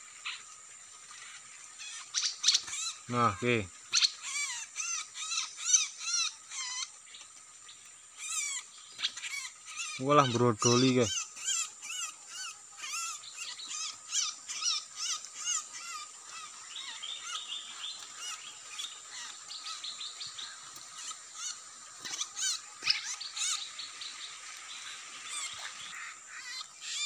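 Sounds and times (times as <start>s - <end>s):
small birds chirping: 0.0s - 27.0s.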